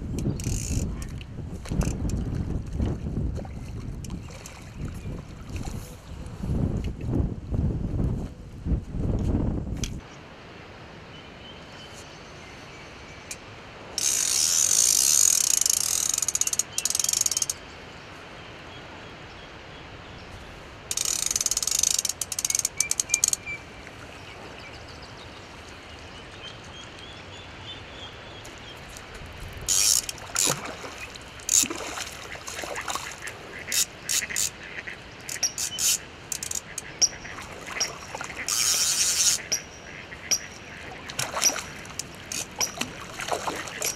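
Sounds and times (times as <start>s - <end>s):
fishing reel ratchet clicking: 0.2s - 0.9s, 14.0s - 17.6s, 20.9s - 23.4s, 29.7s - 30.6s, 33.7s - 34.5s, 35.3s - 36.8s, 38.5s - 39.4s.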